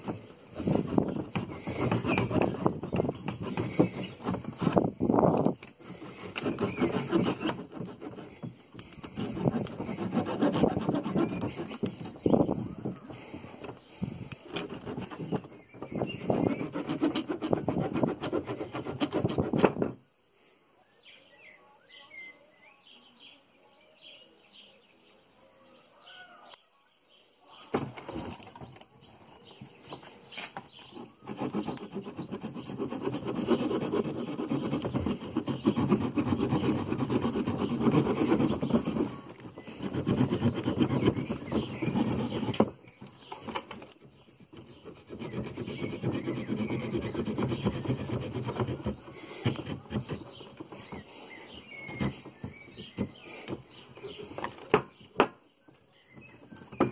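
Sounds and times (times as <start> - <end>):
saw blade sawing branch: 0.0 - 19.8, 30.4 - 51.1
faint birdsong: 0.0 - 56.9.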